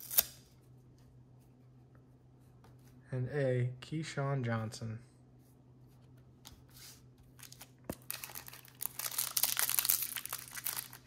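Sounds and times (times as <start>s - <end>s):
wrapper tearing and crinkling: 7.4s - 11.0s.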